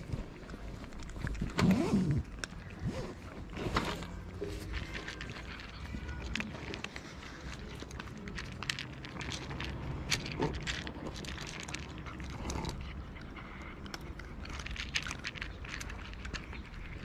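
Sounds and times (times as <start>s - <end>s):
cats chewing and crunching: 0.0s - 17.0s.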